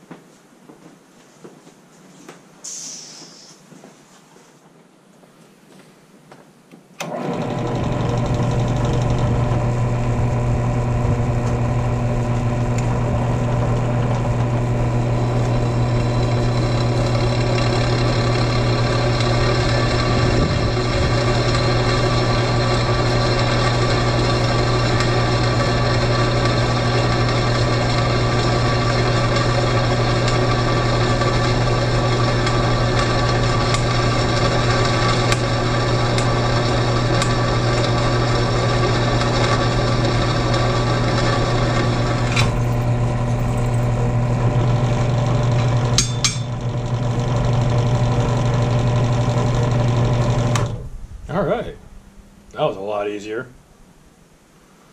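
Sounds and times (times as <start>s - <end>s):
drill press drilling metal: 7.0s - 50.8s.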